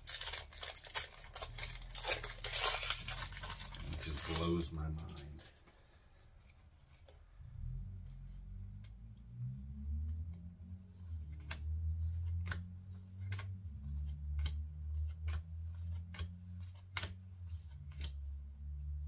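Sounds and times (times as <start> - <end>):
trading cards snapping: 11.3 - 18.2.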